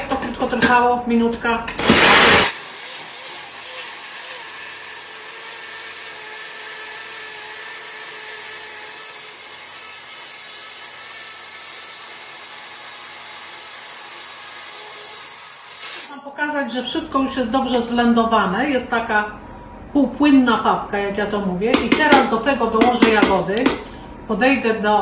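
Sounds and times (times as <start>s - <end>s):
blender motor grinding: 1.8s - 16.1s.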